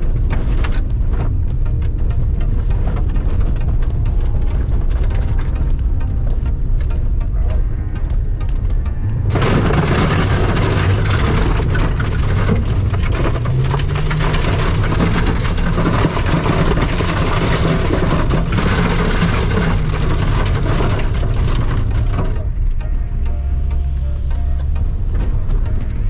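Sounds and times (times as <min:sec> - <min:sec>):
car tyres and engine rumble: 0:00.0 - 0:26.0
stones hitting car underbody: 0:09.3 - 0:22.4.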